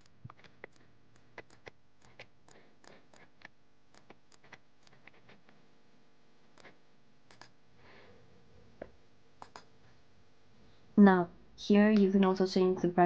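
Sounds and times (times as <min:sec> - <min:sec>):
computer mouse clicks: 0:00.0 - 0:05.5, 0:06.5 - 0:07.6, 0:09.4 - 0:09.7.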